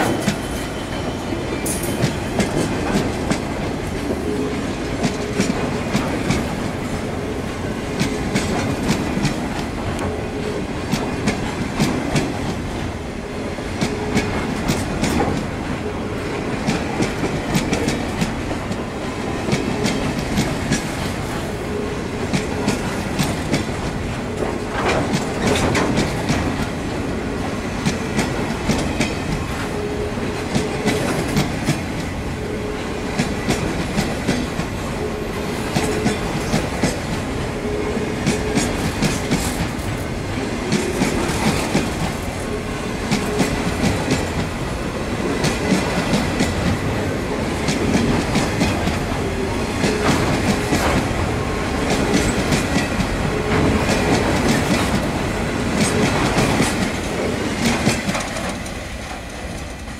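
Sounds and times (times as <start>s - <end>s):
freight train rumbling past: 0.0s - 59.9s.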